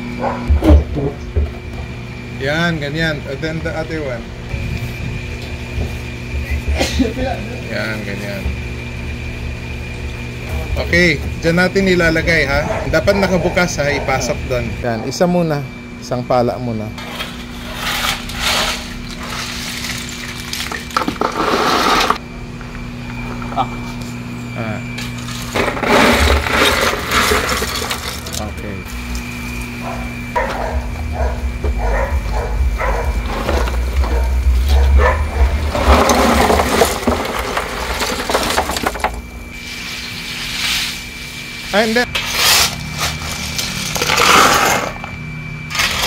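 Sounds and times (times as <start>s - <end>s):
shells clattering into plastic basin: 18.6s - 22.2s, 25.2s - 28.5s, 35.7s - 39.2s
steel shovel scraping shells: 42.1s - 45.0s.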